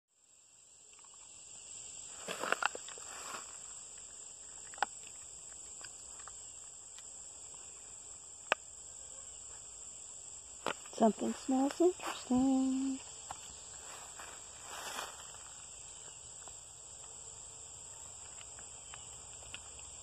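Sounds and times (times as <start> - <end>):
insect chorus: 0.1 - 20.0
rustling: 2.1 - 7.1, 10.6 - 15.7.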